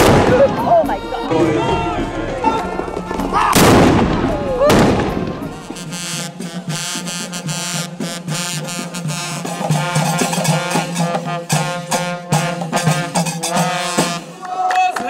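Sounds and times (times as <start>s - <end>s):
jingling frame drum: 0.0s - 14.2s
hand claps: 14.0s - 15.0s.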